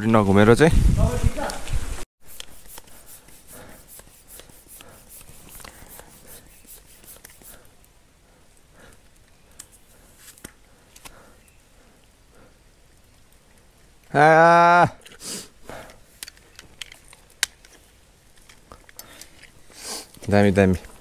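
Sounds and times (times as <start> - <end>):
bicycle pump strokes hissing: 2.2 - 7.7.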